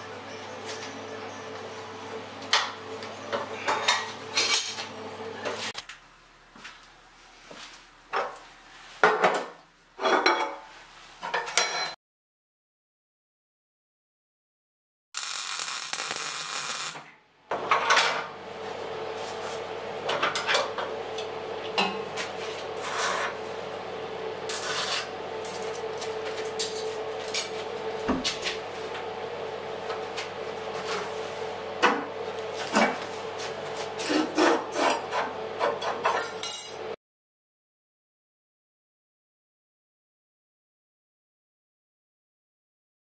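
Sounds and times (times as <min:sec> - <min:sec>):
steady machine hum: 0:00.0 - 0:08.2, 0:15.2 - 0:36.0
welding crackling hiss: 0:15.2 - 0:17.0.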